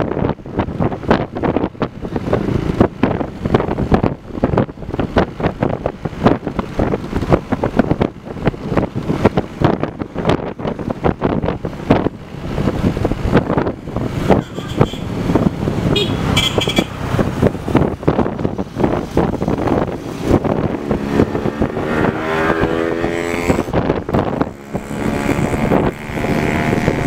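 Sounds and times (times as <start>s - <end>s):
gusty wind buffeting microphone: 0.0s - 27.0s.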